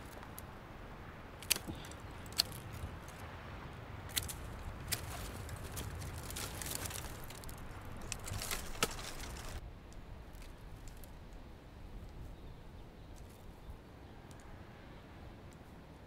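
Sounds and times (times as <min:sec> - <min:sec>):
dry brush rustling and crackling: 0:00.0 - 0:00.6, 0:01.4 - 0:03.4, 0:04.0 - 0:09.6.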